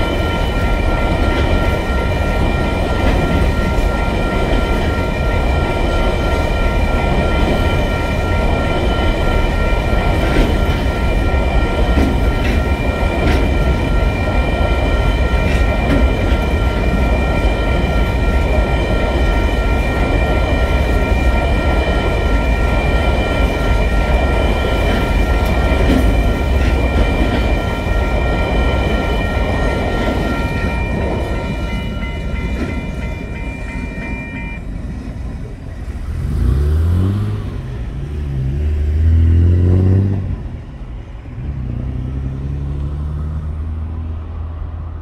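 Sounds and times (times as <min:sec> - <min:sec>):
crossing warning bell ringing: 0:00.0 - 0:44.6
freight train rumbling past: 0:00.0 - 0:45.0
car engine accelerating: 0:36.1 - 0:40.3.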